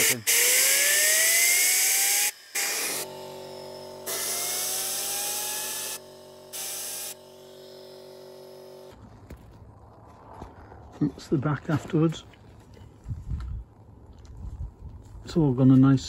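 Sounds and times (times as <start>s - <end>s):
turbine rotor whine: 0.0s - 10.5s.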